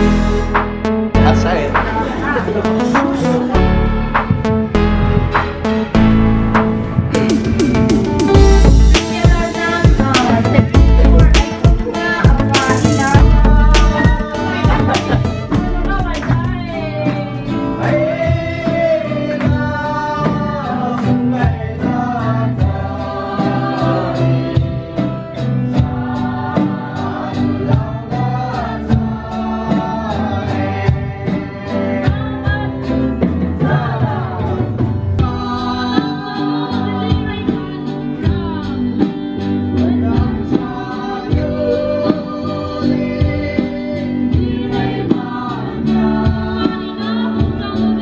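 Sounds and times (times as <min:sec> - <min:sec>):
electronic drum beat: 0:00.0 - 0:18.9
electric bass: 0:00.0 - 0:48.0
group singing: 0:07.2 - 0:48.0.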